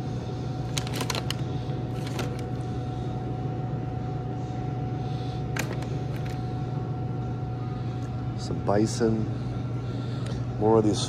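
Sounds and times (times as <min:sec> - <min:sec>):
refrigerator hum with faint whine: 0:00.0 - 0:11.0
plastic packaging crinkling: 0:00.7 - 0:02.6.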